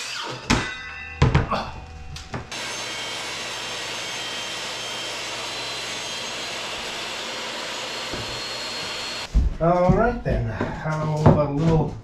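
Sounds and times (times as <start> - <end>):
table saw cutting plywood: 2.5 - 9.3.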